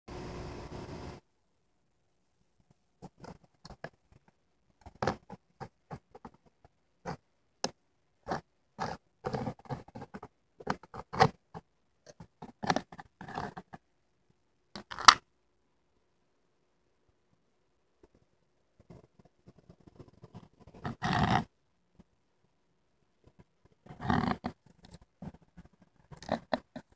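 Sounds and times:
plastic container scraping and tapping: 4.8s - 13.8s, 23.9s - 26.9s.

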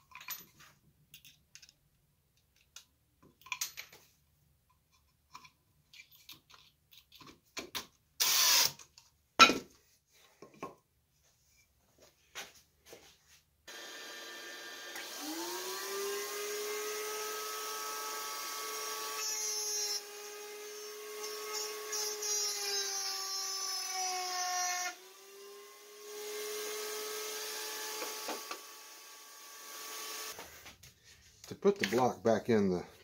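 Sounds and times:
cordless drill driving screw: 8.2s - 8.8s, 13.7s - 30.4s
router motor whine: 13.7s - 30.4s.

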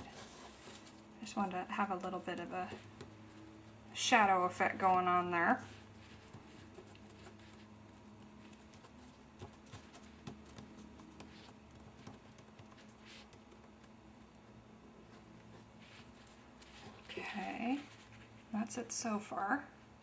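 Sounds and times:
low room hum: 0.0s - 20.0s
paper rustling and tapping: 4.8s - 13.8s.

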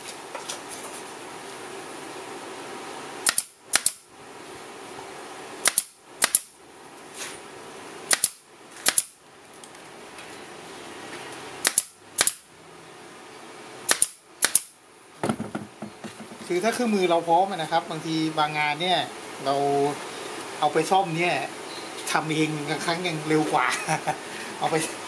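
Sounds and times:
pneumatic pin nailer firing: 3.2s - 4.1s, 5.6s - 6.6s, 8.1s - 9.2s, 11.6s - 12.5s, 13.9s - 15.5s.

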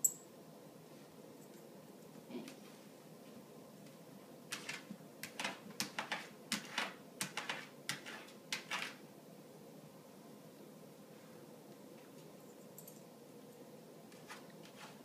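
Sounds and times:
dog claws clicking on tile: 4.5s - 9.0s.

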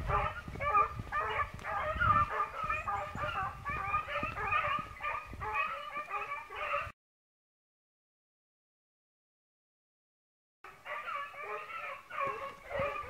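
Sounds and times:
hounds baying in chorus: 0.0s - 6.9s, 10.7s - 13.0s.

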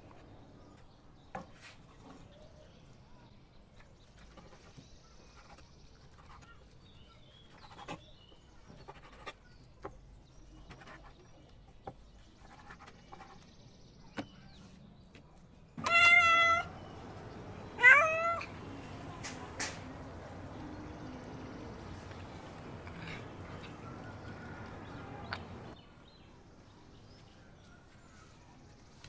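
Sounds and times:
cat meowing: 15.8s - 17.0s, 17.6s - 18.6s.

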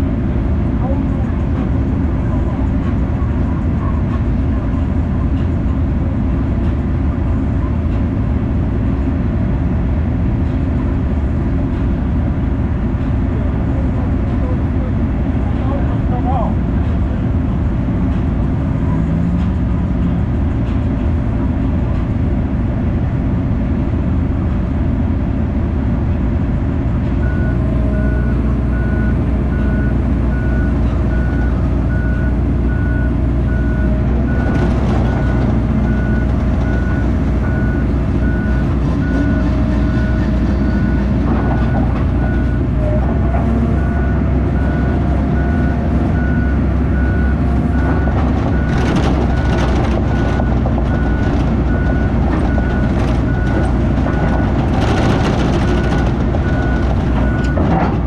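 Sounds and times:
diesel engine running: 0.0s - 58.0s
reversing alarm beeping: 27.2s - 42.8s, 43.7s - 57.7s.

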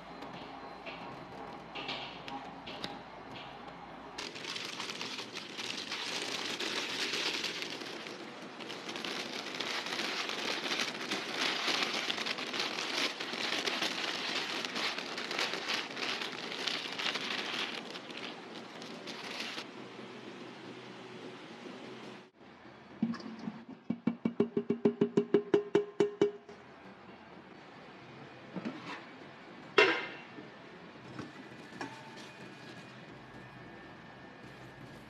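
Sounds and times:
baking paper rustling and crinkling: 4.2s - 19.7s.

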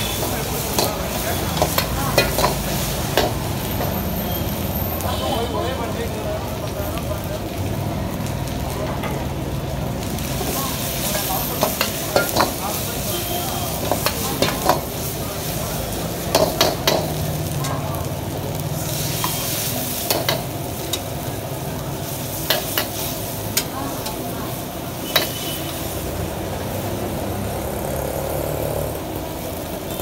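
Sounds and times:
food sizzling in a wok: 0.0s - 30.0s
ladle scraping and knocking wok: 0.1s - 4.0s, 10.4s - 12.9s, 13.7s - 15.1s.

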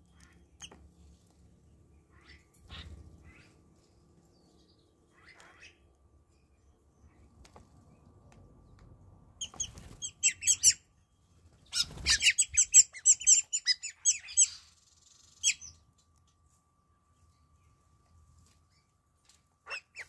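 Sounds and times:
starlings squeaky chirps: 9.4s - 10.9s, 11.6s - 15.8s, 19.7s - 20.0s.

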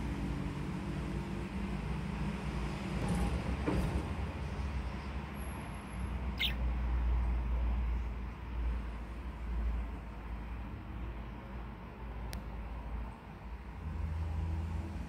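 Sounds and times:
budgerigar chirp: 6.3s - 6.7s.

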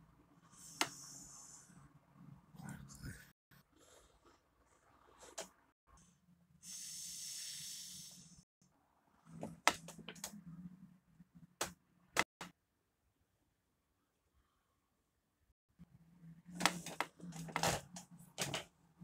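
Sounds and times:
hiss: 6.6s - 8.4s.

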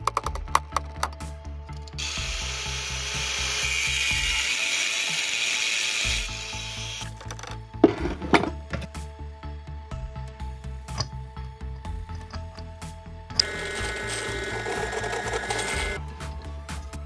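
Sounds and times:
angle grinder cutting steel: 2.0s - 7.1s, 13.4s - 16.0s
background music with beat: 5.2s - 17.0s.

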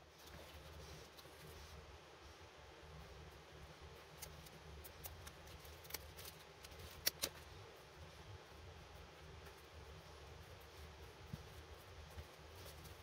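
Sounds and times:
low steady hum: 0.0s - 13.0s
light clicks and rustles: 4.0s - 13.0s.

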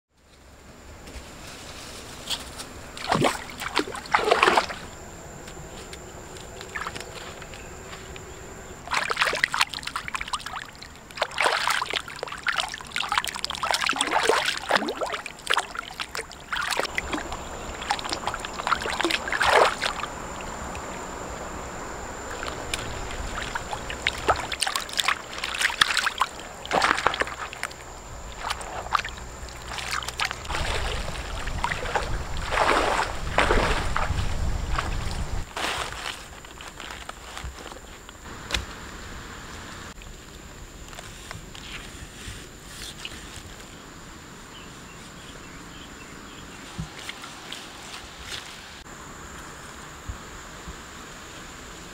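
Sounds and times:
water splashing and sloshing: 1.4s - 38.8s
water trickling through basket: 8.9s - 20.8s, 22.3s - 34.2s.

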